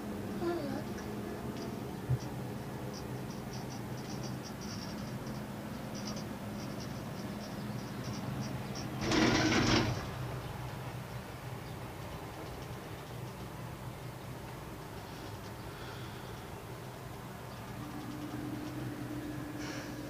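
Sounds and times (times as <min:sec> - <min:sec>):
gondola cabin humming: 0:00.0 - 0:20.0
faint ticking and rattling: 0:00.8 - 0:20.0
gondola clattering over rollers: 0:01.1 - 0:13.8.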